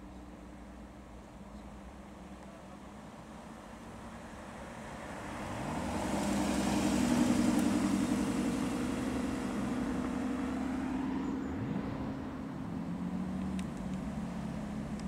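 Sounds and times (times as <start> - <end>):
car engine driving past: 5.0 - 15.0.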